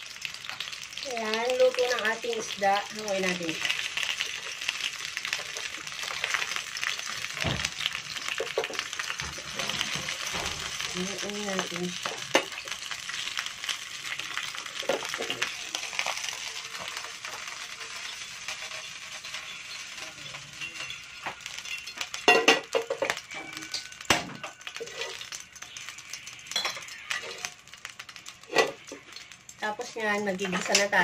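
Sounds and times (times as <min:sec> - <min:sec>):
hot oil sizzling in a frying pan: 0:00.0 - 0:31.0
cookware clinking on a stove: 0:18.5 - 0:25.2, 0:26.5 - 0:27.5.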